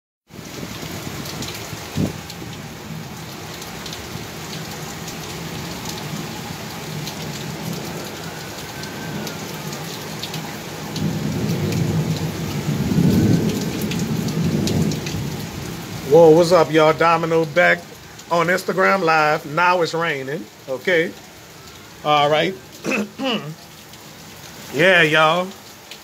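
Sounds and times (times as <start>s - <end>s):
heavy rain pouring: 0.3s - 26.0s
sharp ticks of raindrops: 0.3s - 26.0s
low rumble of thunder: 0.4s - 2.6s, 10.9s - 16.1s.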